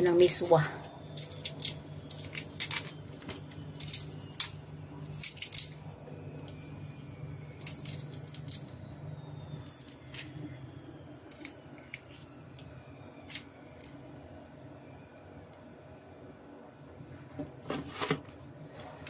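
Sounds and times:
low steady hum: 0.0 - 19.0
shrimp shells cracking and squelching: 5.1 - 5.8.

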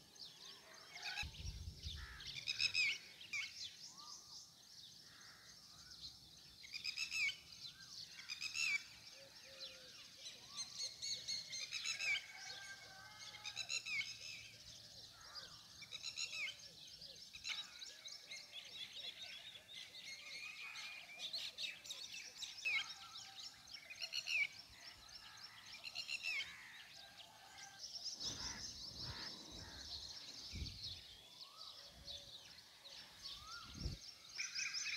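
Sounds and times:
birds chirping: 22.5 - 34.9.

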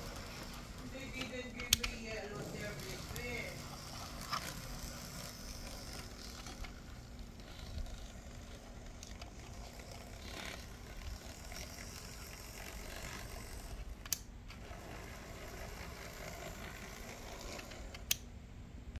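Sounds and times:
model train motor whirring: 0.0 - 18.3.

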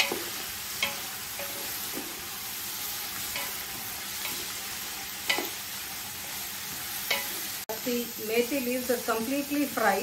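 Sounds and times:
leaves sizzling in oil: 0.0 - 10.0.

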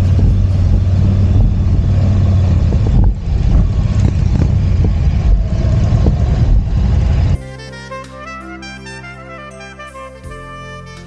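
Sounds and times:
motorcycle engine rumbling: 0.0 - 7.6.

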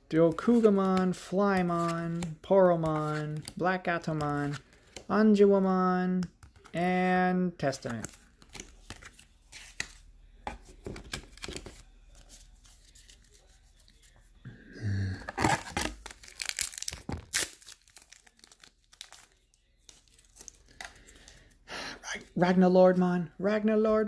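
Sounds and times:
foil pack crinkling and tearing: 15.3 - 21.3.

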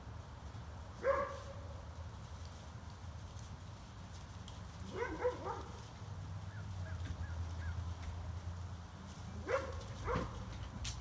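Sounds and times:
dog yelping: 4.9 - 5.6.

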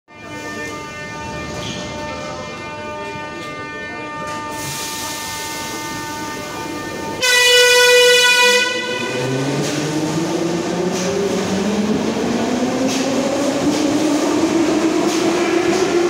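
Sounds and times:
train humming: 0.2 - 16.0
train horn blast: 7.1 - 9.4.

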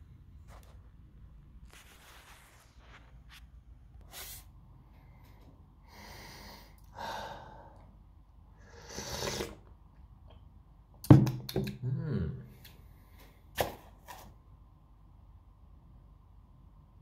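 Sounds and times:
person sniffing: 4.1 - 4.5, 8.6 - 9.7
slurping sip: 8.6 - 9.8.

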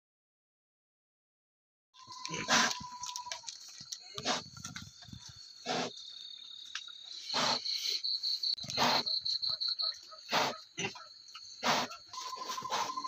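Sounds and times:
crickets chirring: 2.0 - 13.0
pig grunting: 2.2 - 3.2, 4.1 - 4.6, 5.6 - 6.0, 7.2 - 7.8, 10.2 - 13.0.

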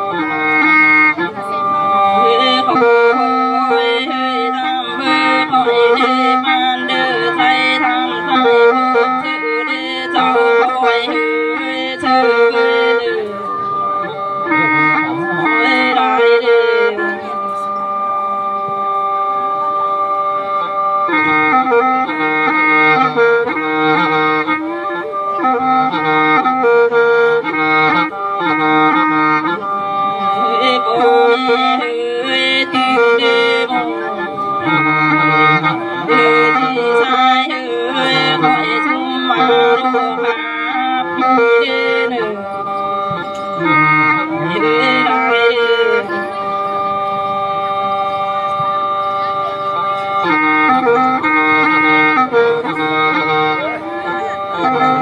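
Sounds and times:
sustained accompaniment: 0.0 - 55.0
person singing folk song: 1.4 - 17.7, 29.6 - 43.0, 43.6 - 46.8.

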